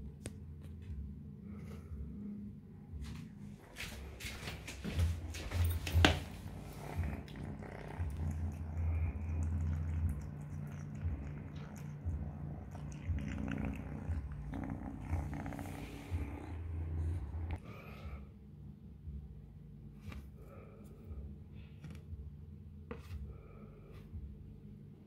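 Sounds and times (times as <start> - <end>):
kitten purring: 5.2 - 17.6.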